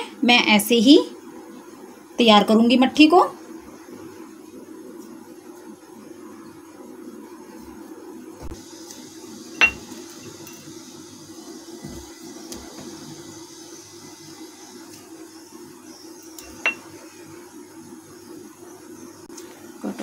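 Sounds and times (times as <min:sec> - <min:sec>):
steady low hum: 0:00.0 - 0:20.0
clinks on glass bowl: 0:09.6 - 0:09.9, 0:16.4 - 0:16.9.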